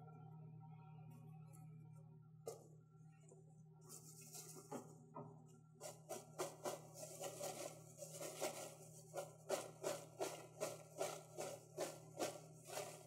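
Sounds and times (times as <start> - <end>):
popcorn popping: 4.5 - 13.0.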